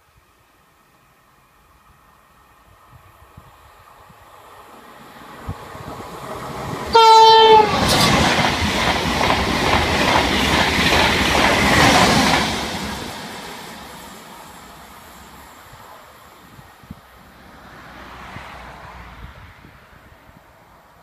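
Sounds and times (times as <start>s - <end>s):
high-speed train rushing past: 1.1s - 21.0s
train horn blast: 6.9s - 8.1s.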